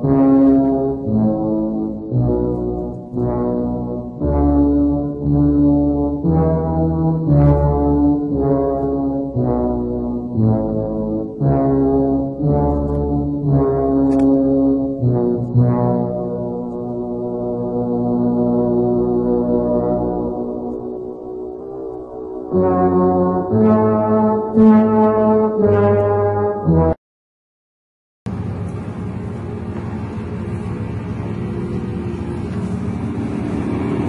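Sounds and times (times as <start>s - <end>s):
music with deep brass notes: 0.0s - 27.0s.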